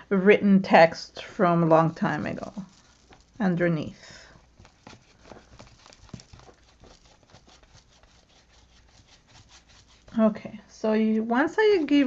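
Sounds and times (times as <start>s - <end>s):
tool scratching and tapping paper: 1.6s - 10.4s.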